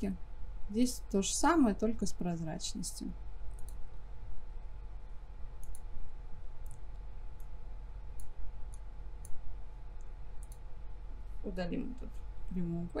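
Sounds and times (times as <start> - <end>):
low electrical hum: 0.0 - 13.0
computer mouse clicking: 3.5 - 3.9, 5.6 - 5.9, 6.6 - 9.4, 10.0 - 10.7.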